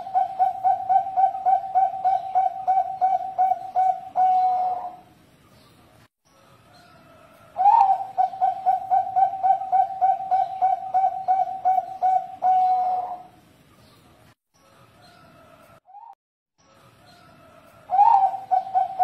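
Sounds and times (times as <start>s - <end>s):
dove cooing: 0.0s - 5.1s, 7.2s - 13.4s, 17.5s - 19.0s.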